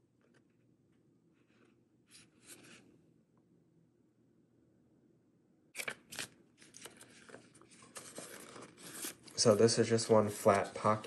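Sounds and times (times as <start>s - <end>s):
paper page rustling: 1.5s - 2.8s, 5.8s - 11.0s
wallet crinkling and rustling: 6.1s - 11.0s.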